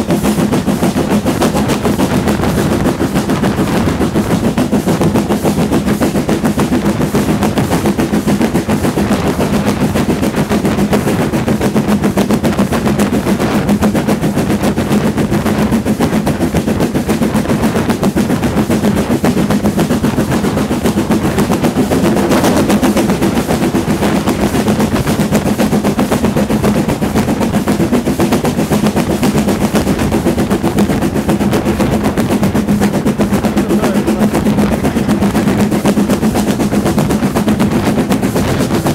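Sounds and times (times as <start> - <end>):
steam locomotive chuffing: 0.0 - 38.9
train rumbling on rails: 0.0 - 38.9.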